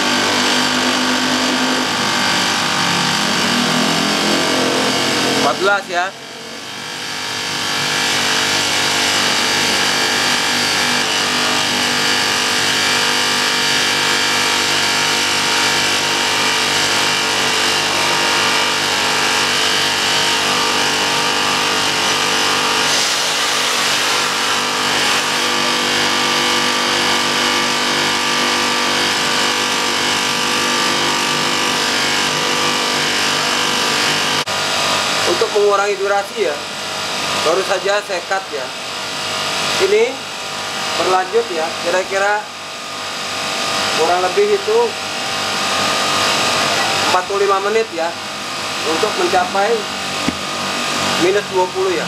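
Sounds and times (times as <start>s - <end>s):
air conditioner unit humming: 0.0s - 52.0s.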